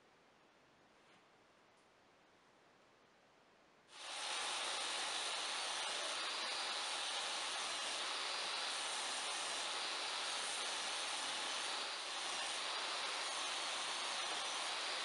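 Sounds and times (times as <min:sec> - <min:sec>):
woodworking power tool running: 0:04.0 - 0:15.0.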